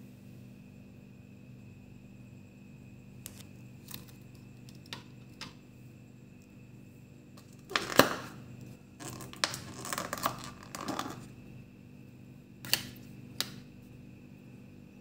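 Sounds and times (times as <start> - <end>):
scratchy handling noise: 3.2 - 5.4, 9.0 - 11.3.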